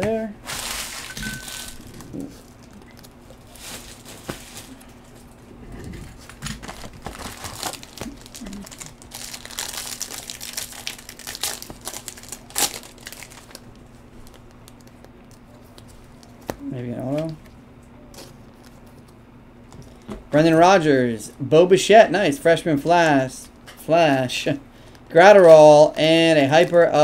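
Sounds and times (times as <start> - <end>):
wrapper crinkling and tearing: 0.4 - 4.9, 6.2 - 15.0.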